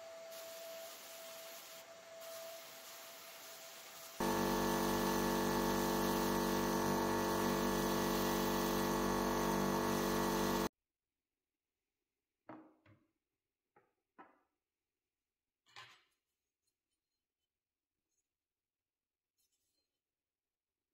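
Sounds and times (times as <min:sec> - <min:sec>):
bench grinder wire brush hum: 0:04.2 - 0:10.7.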